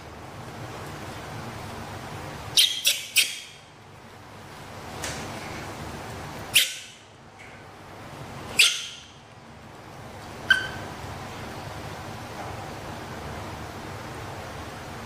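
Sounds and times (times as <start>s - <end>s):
baby monkey squealing: 2.5s - 3.6s, 6.5s - 7.0s, 8.6s - 9.1s, 10.5s - 10.9s.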